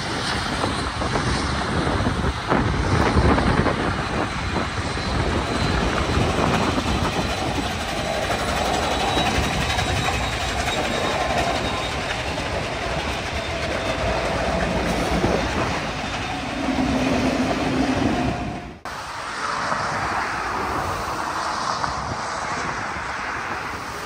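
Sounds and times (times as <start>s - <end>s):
train wheels clacking over rail joints: 4.5s - 18.5s.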